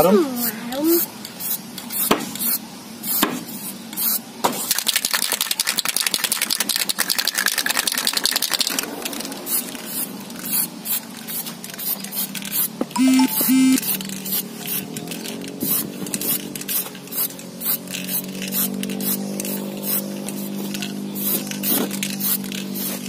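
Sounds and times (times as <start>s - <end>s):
spray can hissing: 0.4s - 14.8s, 15.6s - 23.0s
short pitched toots: 13.0s - 13.9s.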